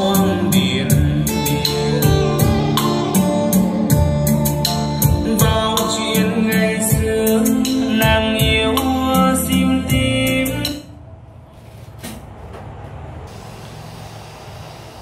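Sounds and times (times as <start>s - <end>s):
pop music over loudspeakers: 0.0s - 10.9s.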